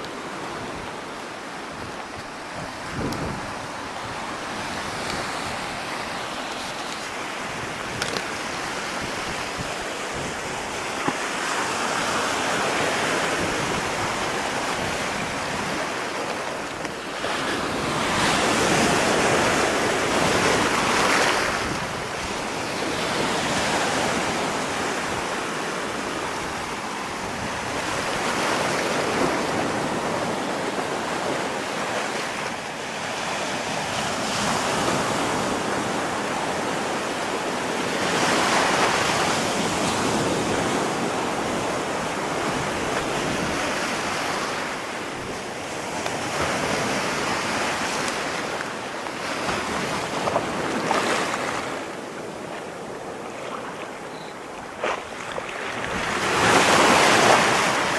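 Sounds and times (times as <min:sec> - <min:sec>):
surf breaking on beach: 0:00.0 - 0:54.0, 0:54.6 - 0:57.9.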